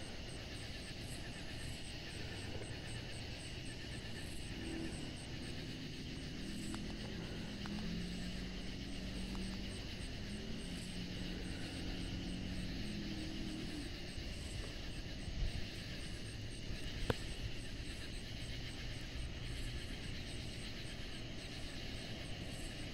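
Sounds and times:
low rumble: 0.0 - 21.5
cicadas buzzing: 0.0 - 22.9
low droning hum: 0.0 - 22.9.

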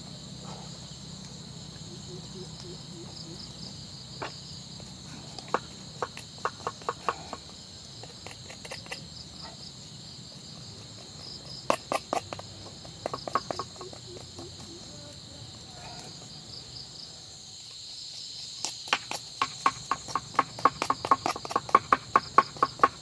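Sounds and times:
insects droning: 0.0 - 23.0
knife chopping on wood: 18.6 - 23.0.

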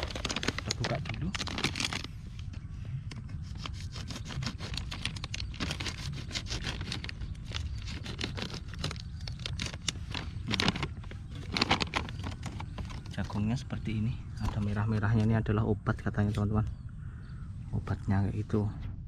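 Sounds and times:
plastic packet crinkling: 0.0 - 2.1, 4.8 - 13.1.

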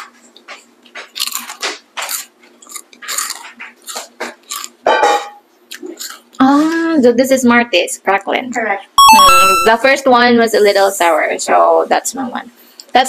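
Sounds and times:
crunchy snack being chewed: 0.4 - 4.8, 5.7 - 6.4.

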